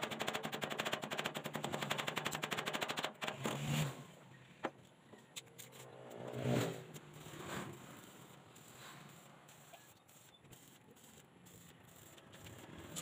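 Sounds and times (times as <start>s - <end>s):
passing vehicle engine: 5.7s - 8.3s
arc welding crackle: 6.9s - 13.0s.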